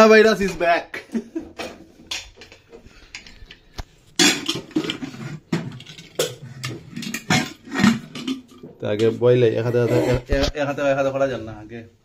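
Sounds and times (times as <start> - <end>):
metal pots and utensils clattering: 1.4 - 3.6, 4.2 - 10.6.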